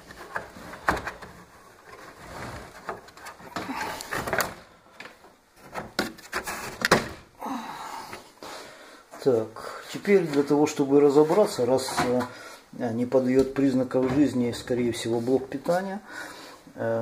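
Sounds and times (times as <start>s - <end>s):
plastic scraping and rubbing: 0.0s - 7.3s.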